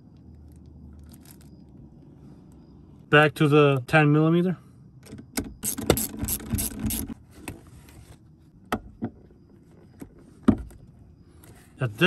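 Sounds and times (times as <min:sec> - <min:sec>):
ratchet wrench clicking rapidly: 0:05.6 - 0:07.2.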